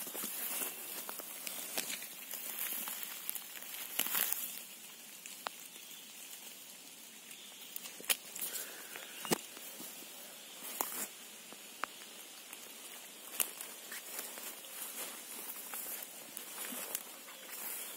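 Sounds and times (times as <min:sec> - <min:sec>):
grass and leaves rustling: 0:00.0 - 0:17.9
sharp snaps and clicks: 0:01.0 - 0:04.6, 0:07.3 - 0:09.6, 0:13.3 - 0:14.0.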